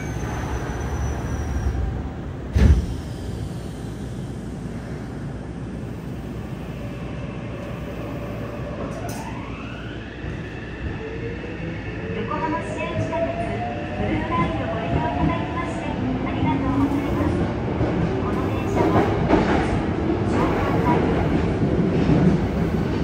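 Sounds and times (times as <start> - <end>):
subway doors slamming shut: 0.0 - 3.6
train background hum: 0.0 - 23.0.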